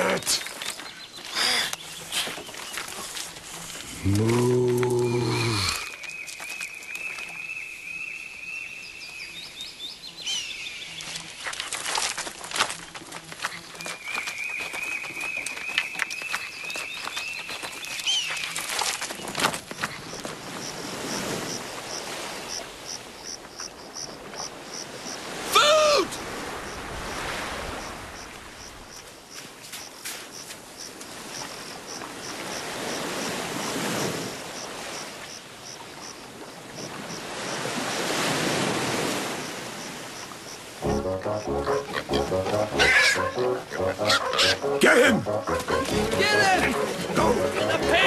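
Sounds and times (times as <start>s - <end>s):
surf washing on beach: 24.6s - 28.9s, 36.2s - 40.9s.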